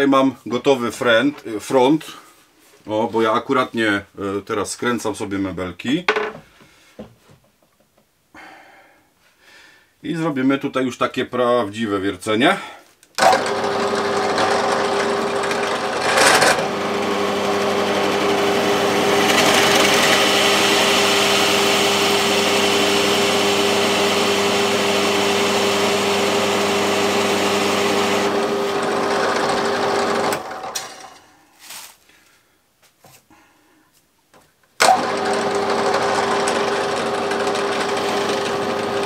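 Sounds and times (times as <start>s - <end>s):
drill bit rasping into wood: 13.2s - 30.5s, 34.8s - 39.0s
drill press motor humming: 13.2s - 30.9s, 34.8s - 39.0s.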